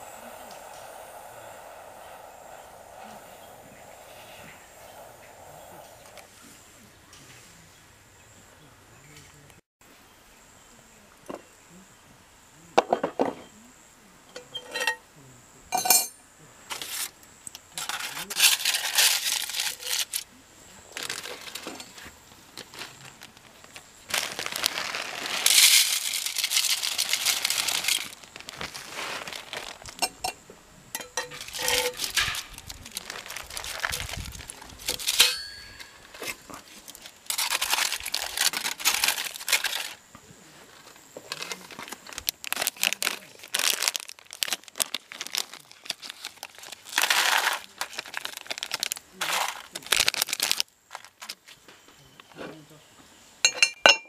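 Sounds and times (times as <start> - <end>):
packaging crinkling: 17.8 - 20.2, 21.0 - 22.0, 22.6 - 30.1, 31.4 - 40.0, 41.3 - 51.4
light clinks: 35.1 - 36.1, 53.4 - 54.0.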